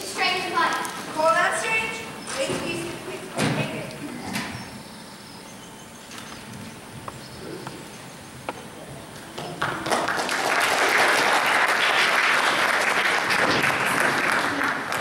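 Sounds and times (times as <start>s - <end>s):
audience applause: 9.4s - 15.0s.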